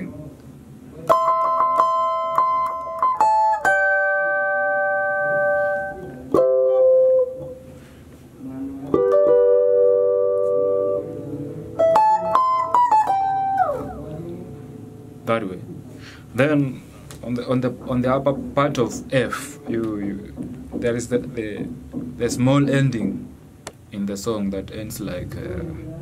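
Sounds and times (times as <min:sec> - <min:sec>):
clean electric guitar notes: 0:01.0 - 0:07.8, 0:08.5 - 0:16.2.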